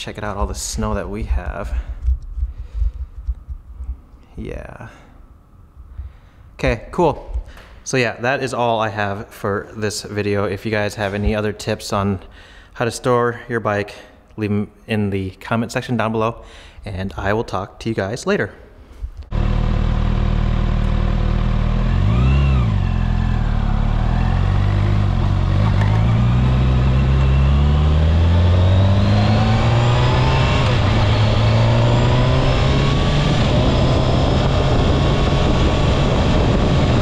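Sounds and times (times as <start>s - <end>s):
motorcycle engine revving: 19.3s - 37.0s.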